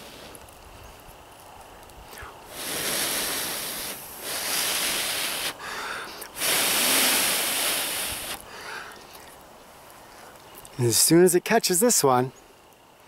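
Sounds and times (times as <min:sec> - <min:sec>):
person blowing hard: 0:02.5 - 0:08.4.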